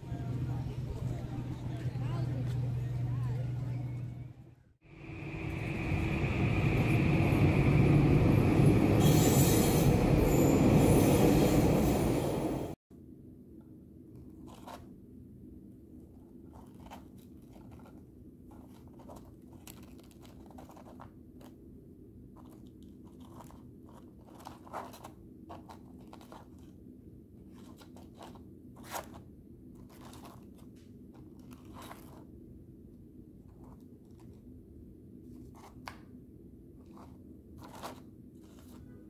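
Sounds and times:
low steady hum: 0:00.0 - 0:08.9.

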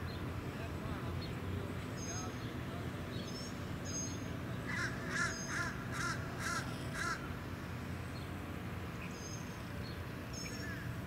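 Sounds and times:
crow cawing: 0:04.7 - 0:07.2.

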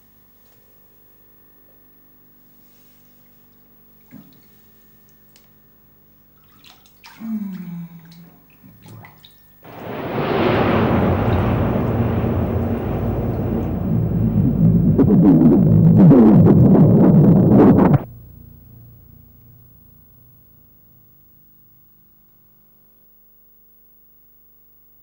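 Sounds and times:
water drips and small splashes: 0:06.3 - 0:09.5
muffled underwater rush: 0:09.7 - 0:18.1.

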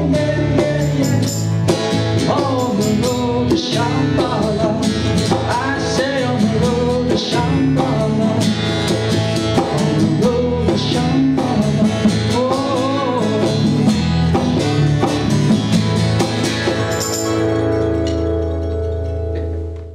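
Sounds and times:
strummed acoustic guitar: 0:00.0 - 0:19.8
bass: 0:00.0 - 0:19.9
mandolin: 0:14.0 - 0:19.9.

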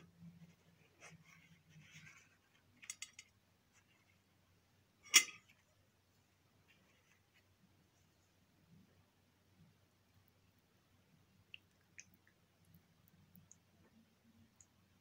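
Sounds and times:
spoon clinking on ceramic plate: 0:05.1 - 0:05.4.

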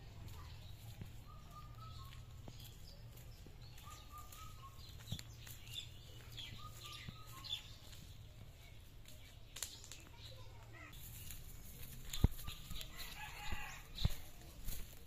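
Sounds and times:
birds calling: 0:00.0 - 0:15.0
high bird chirps: 0:00.4 - 0:08.7.

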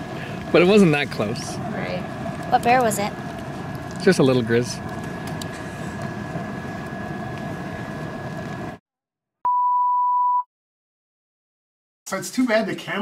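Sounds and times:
electronic beep: 0:09.5 - 0:10.5.

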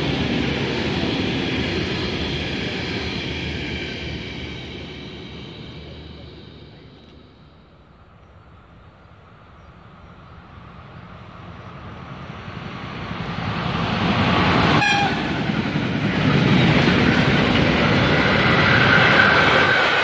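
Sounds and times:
train passing on rails: 0:00.0 - 0:20.0
short high train horn toot: 0:14.8 - 0:15.4.

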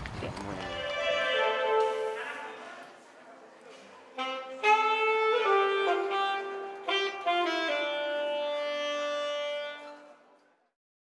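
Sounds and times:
saxophone playing: 0:00.6 - 0:02.7, 0:04.2 - 0:10.4.

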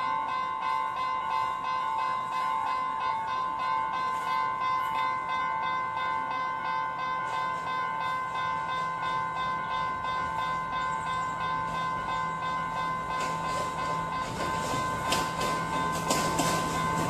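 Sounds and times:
diesel train engine hum: 0:00.0 - 0:17.0
level crossing bell ringing rapidly: 0:00.0 - 0:17.0
train rail noise: 0:00.0 - 0:17.0.

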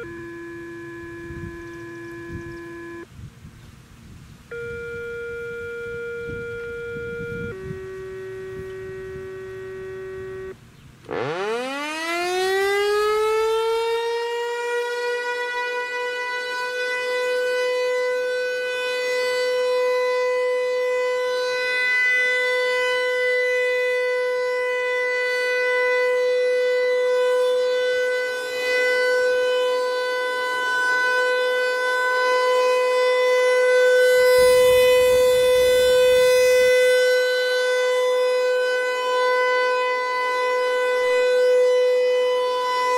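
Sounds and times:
warning siren winding up: 0:00.0 - 0:03.1, 0:04.5 - 0:42.9
steady electronic tone: 0:04.5 - 0:10.6, 0:33.9 - 0:37.7.

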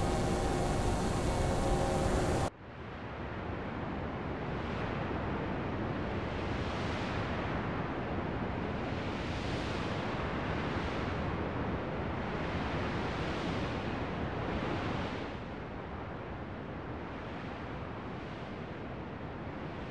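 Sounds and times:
steady rushing noise: 0:00.0 - 0:02.5.

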